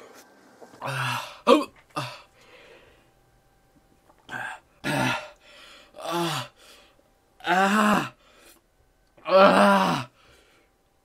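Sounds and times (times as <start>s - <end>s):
man groaning: 0.8s - 2.3s, 4.3s - 5.4s, 6.0s - 6.5s, 7.4s - 8.2s, 9.2s - 10.1s.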